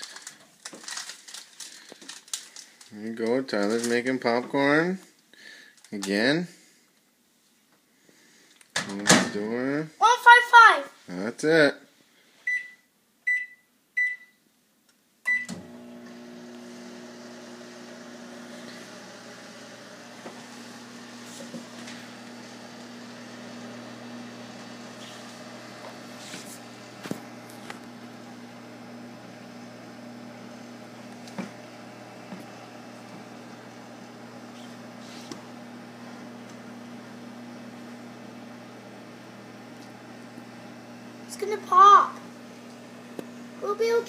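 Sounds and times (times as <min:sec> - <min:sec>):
microwave keypad beeping: 0:12.5 - 0:14.3
microwave oven humming: 0:15.3 - 0:44.0.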